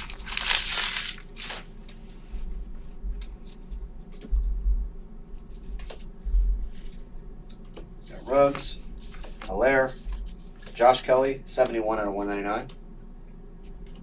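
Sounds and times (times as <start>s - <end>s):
card pack wrapper crinkling: 0.0s - 2.0s
cards being handled: 5.4s - 11.8s.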